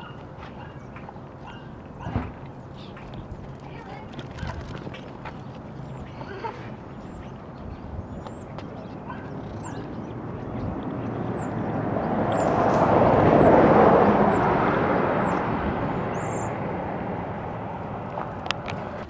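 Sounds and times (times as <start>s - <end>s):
bird chirping: 4.9s - 13.5s, 14.1s - 16.6s
vehicle passing by: 9.2s - 19.0s.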